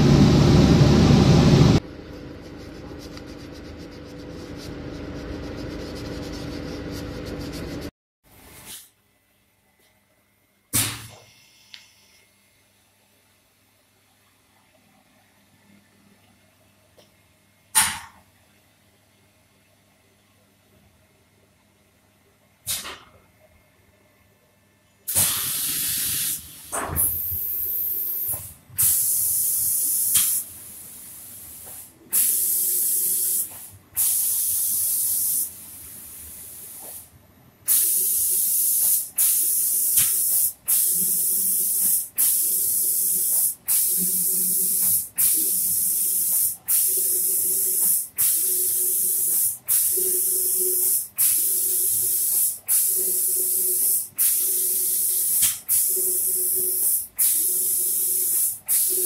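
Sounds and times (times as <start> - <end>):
spray gun hissing: 32.2 - 37.0, 37.7 - 59.0.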